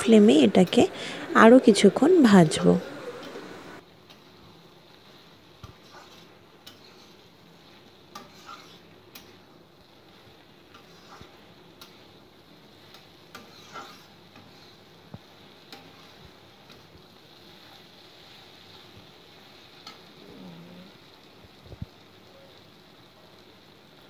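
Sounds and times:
faint sizzle: 0.0 - 24.0
spatula scraping a pan: 5.6 - 9.5, 10.1 - 12.1, 12.8 - 16.8.

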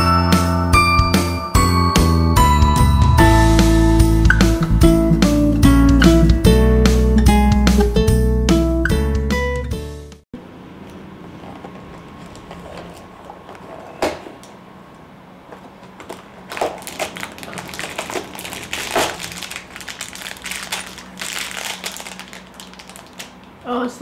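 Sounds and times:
cardboard and plastic crinkling: 15.6 - 23.6.

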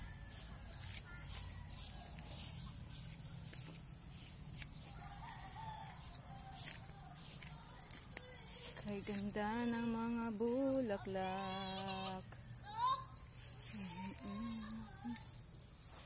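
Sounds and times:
rooster crowing faintly: 0.0 - 3.0, 4.8 - 8.8
footsteps on gravel: 0.0 - 9.9.

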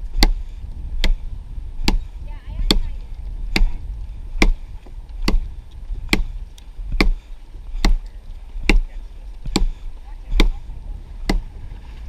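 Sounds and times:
axe chopping wood: 0.1 - 0.4, 1.0 - 1.2, 1.8 - 10.6, 11.2 - 11.5.

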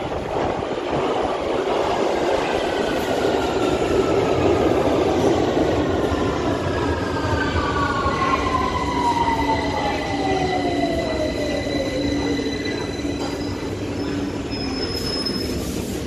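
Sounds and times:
steady high squeal: 6.0 - 16.0.

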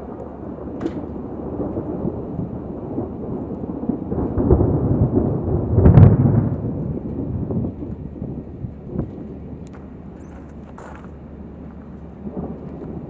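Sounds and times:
sharp thunder crack: 0.0 - 13.0
thunder rumbling: 0.0 - 13.0.

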